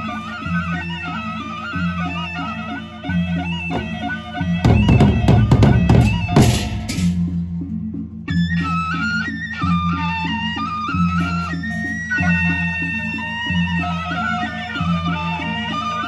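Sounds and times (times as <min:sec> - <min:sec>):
wavering wind instrument melody: 0:00.0 - 0:16.0
loud drumming: 0:03.7 - 0:07.3
low drum pattern: 0:04.6 - 0:07.4
handheld cymbals clashing: 0:05.2 - 0:07.3.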